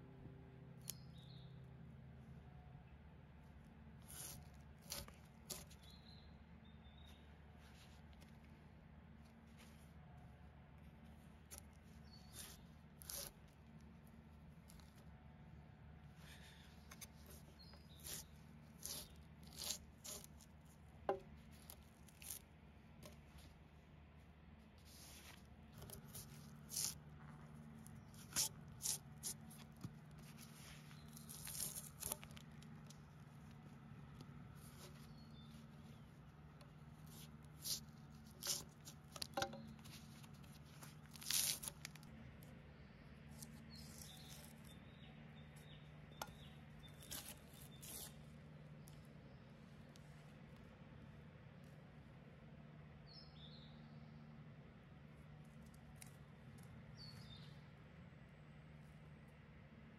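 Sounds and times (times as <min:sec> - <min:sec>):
drawknife scraping bark from log: 0:03.9 - 0:06.2, 0:11.4 - 0:15.1, 0:16.2 - 0:23.5, 0:24.8 - 0:42.5, 0:43.2 - 0:50.0.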